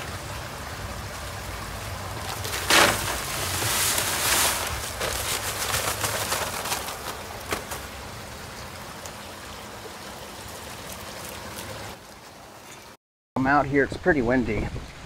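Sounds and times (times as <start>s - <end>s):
hoe scraping wet concrete: 2.1s - 7.8s.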